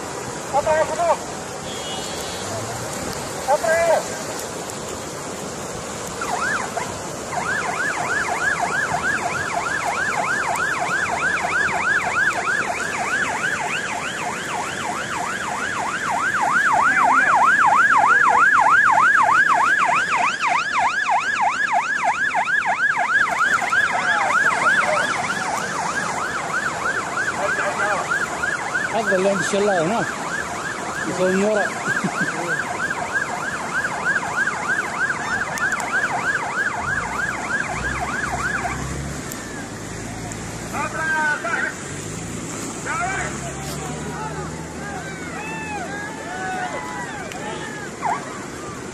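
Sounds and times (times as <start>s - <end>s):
floodwater rushing: 0.0s - 48.9s
electronic siren yelping: 6.1s - 39.8s, 44.2s - 48.9s.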